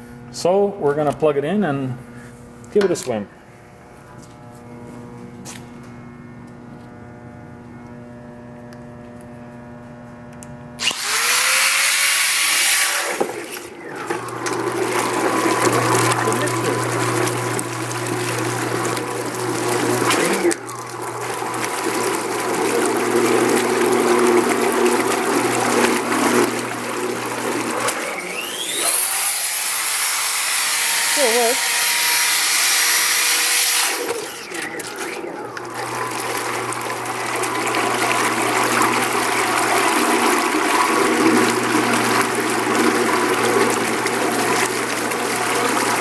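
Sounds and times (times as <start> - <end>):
steady motor hum: 0.0 - 46.0
grinder splashing in water: 10.8 - 46.0.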